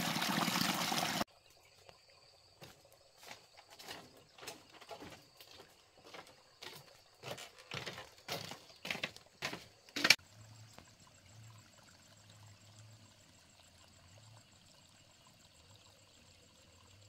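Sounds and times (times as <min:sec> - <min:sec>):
footsteps in sandals: 0:02.6 - 0:10.2
footsteps on bamboo footbridge: 0:02.6 - 0:10.2.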